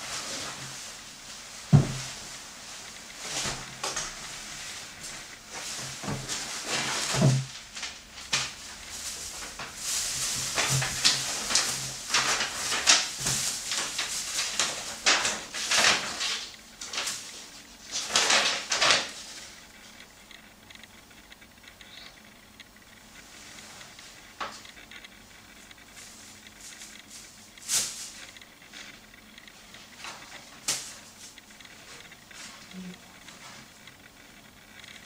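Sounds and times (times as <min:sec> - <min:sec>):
plastic bag and paper rustling: 0:00.0 - 0:19.6, 0:25.9 - 0:33.8.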